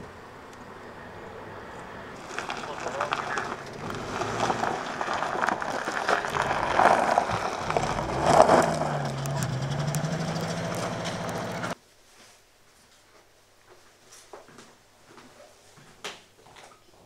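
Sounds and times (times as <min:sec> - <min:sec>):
car engine running: 0:00.0 - 0:11.8
knocks and clatter: 0:02.2 - 0:11.8.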